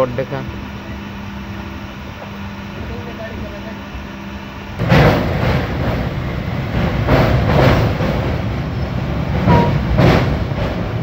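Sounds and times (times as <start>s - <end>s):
train rumbling on steel bridge: 0.0s - 11.0s
wheel clacks over rail joints: 9.3s - 11.0s.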